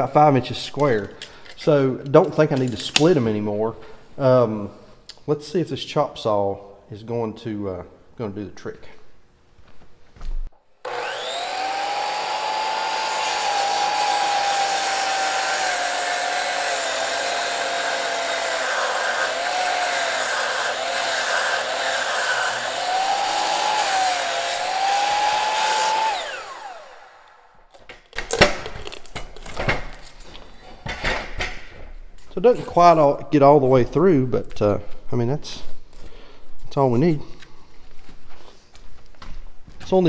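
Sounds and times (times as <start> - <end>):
miter saw cutting wood: 10.8 - 27.6.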